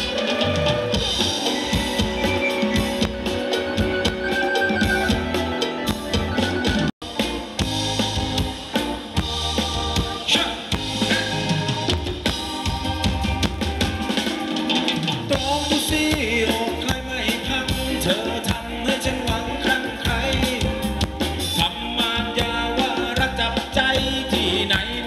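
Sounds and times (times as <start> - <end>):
live band playing dance music: 0.0 - 25.0
steady drum beat: 0.0 - 25.0.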